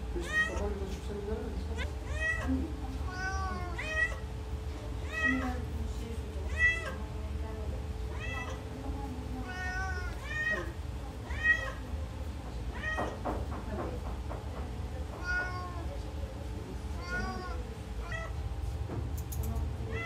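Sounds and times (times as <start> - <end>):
steady low hum: 0.0 - 20.0
kittens mewing: 1.8 - 4.4, 9.4 - 11.8.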